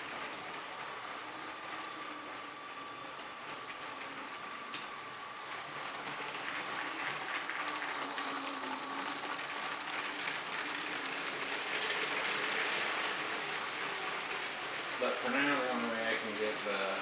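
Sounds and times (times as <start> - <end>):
faint motor whir: 0.0 - 17.0
toy train wheels clattering: 5.6 - 16.6.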